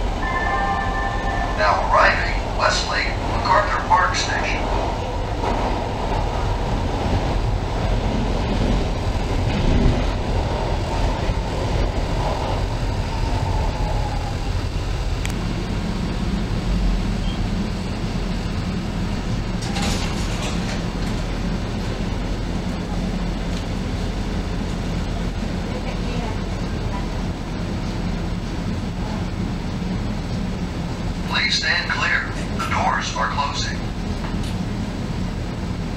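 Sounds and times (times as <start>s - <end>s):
subway train braking whine: 0.0s - 7.7s, 11.1s - 25.1s
standing train car hum: 0.0s - 35.9s
train doors opening: 18.3s - 23.8s.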